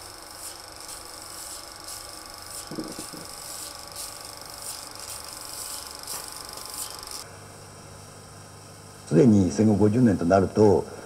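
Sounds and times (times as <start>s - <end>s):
film projector whirring: 0.0s - 7.3s.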